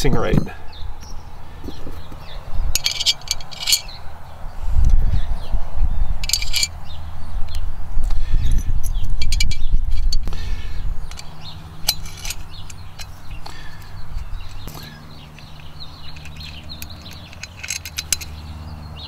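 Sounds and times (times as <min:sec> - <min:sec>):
small metal hardware clinking: 0:02.7 - 0:04.0, 0:06.2 - 0:06.8, 0:08.5 - 0:10.3, 0:11.1 - 0:18.5.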